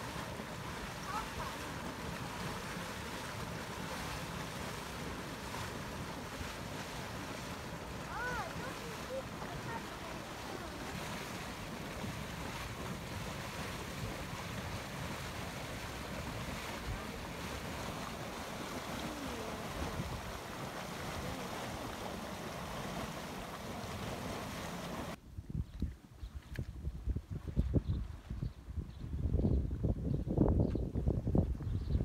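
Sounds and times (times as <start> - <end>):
hot spring water churning: 0.0 - 25.2
steam venting: 0.0 - 25.2.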